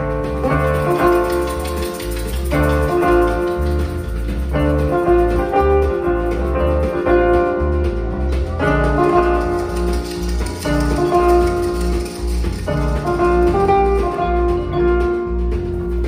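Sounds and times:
jazz band playing: 0.0s - 16.0s
keyboards: 0.0s - 16.0s.

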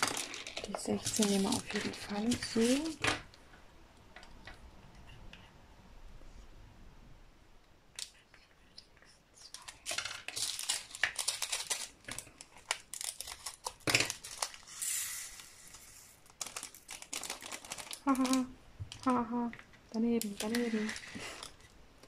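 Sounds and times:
plastic bags crinkling: 0.0s - 3.2s, 9.5s - 14.8s, 15.6s - 19.6s, 20.2s - 21.8s.

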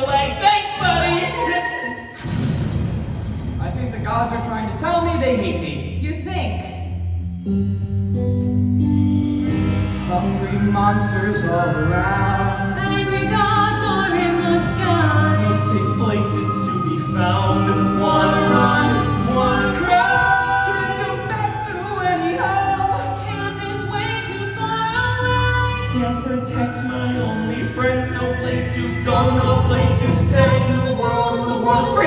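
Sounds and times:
voices singing in harmony: 0.0s - 2.2s, 10.2s - 32.0s
low musical accompaniment: 6.9s - 32.0s.

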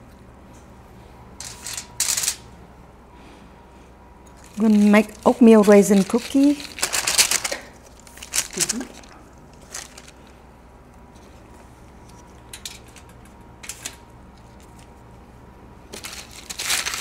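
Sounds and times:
steady low hum: 0.0s - 17.0s
kitchenware clattering: 4.3s - 7.7s.

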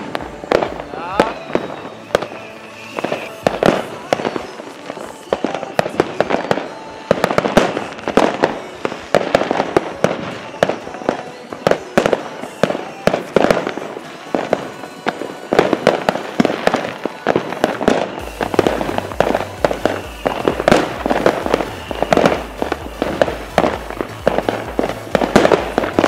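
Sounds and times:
fireworks bangs and crackles: 0.0s - 26.0s
music with pulsing bass: 17.7s - 26.0s.

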